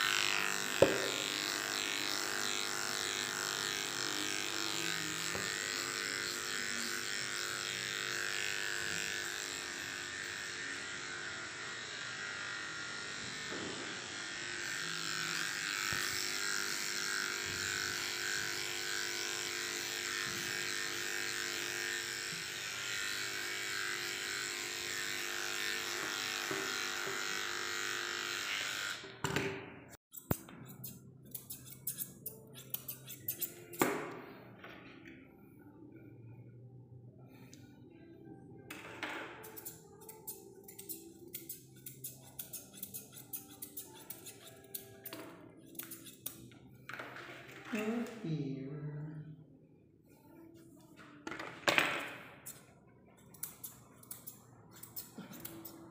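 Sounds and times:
electric clipper buzzing: 0.0 - 29.2
scissors snipping: 53.3 - 55.9.

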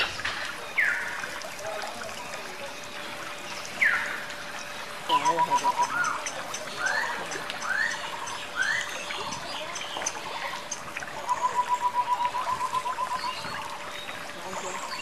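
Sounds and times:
fountain water trickling: 0.0 - 15.0
rapid repeated bird calls: 5.1 - 13.8.

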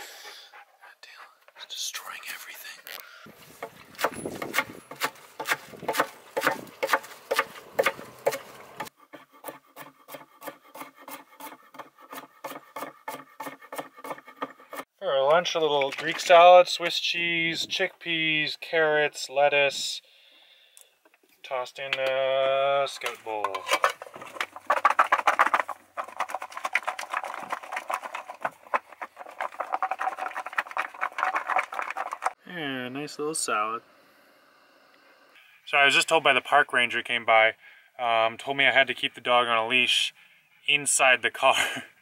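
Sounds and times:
knife chopping on wooden board: 3.6 - 14.8
salad rattling in covered metal bowl: 23.6 - 32.4.

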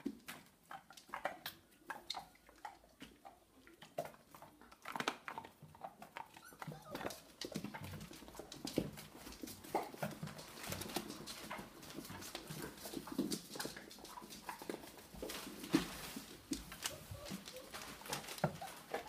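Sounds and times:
small paws scrabbling: 0.0 - 19.0
dog whimpers: 6.2 - 7.6, 16.8 - 19.0.

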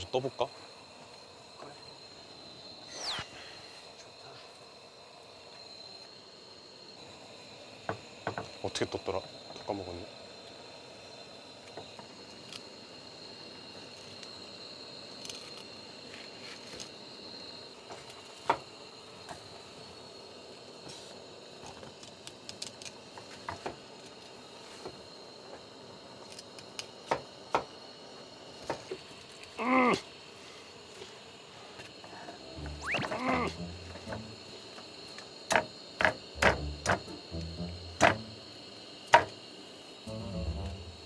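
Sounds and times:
faint high-pitched hum: 32.3 - 34.7, 40.1 - 41.0
wavering pitched sound: 32.4 - 34.4, 40.1 - 41.0.

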